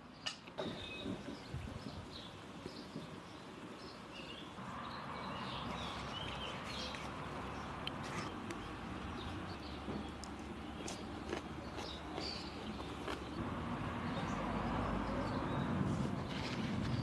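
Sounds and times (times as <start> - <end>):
small birds chirping: 0.0 - 13.4.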